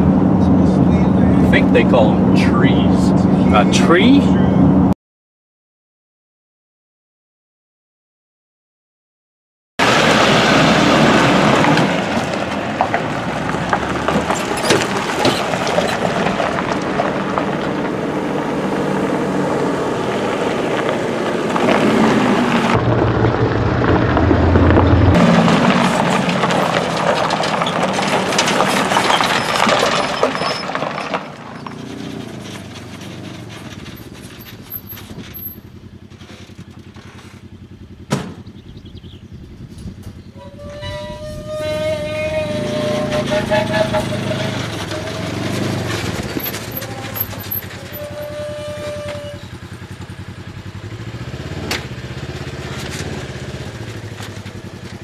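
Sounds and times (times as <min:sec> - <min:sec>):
trucks driving past: 0:00.0 - 0:05.0, 0:09.8 - 0:55.0
tyres on gravel: 0:09.8 - 0:38.8, 0:39.5 - 0:55.0
sharp knock: 0:38.1 - 0:38.5.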